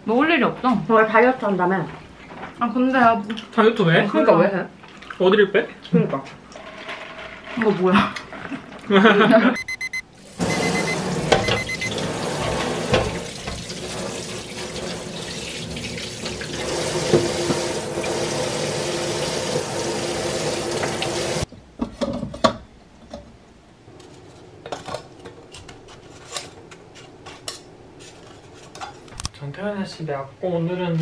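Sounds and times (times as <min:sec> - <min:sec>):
tap water running into sink: 0:10.4 - 0:21.5.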